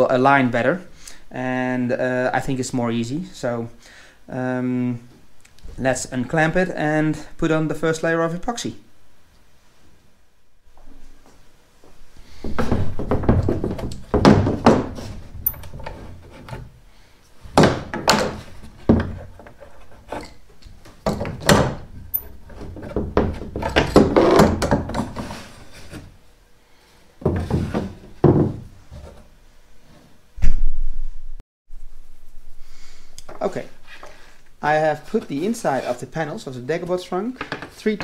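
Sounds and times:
wooden panels knocking on floor: 12.4s - 16.0s, 17.5s - 19.4s, 22.5s - 25.2s, 27.2s - 28.7s.

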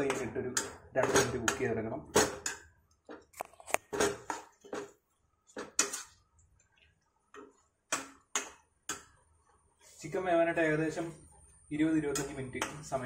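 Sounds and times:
metal spoon scraping frying pan: 0.0s - 2.7s, 3.7s - 6.3s, 9.8s - 13.0s.

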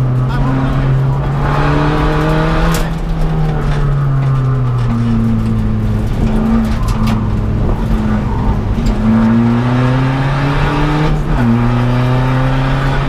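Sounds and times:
rally car engine revving: 0.0s - 13.0s.

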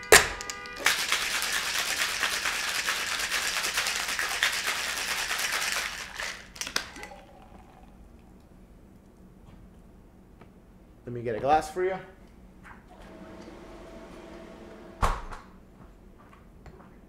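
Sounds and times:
ice rattling in cocktail shaker: 0.8s - 8.0s.

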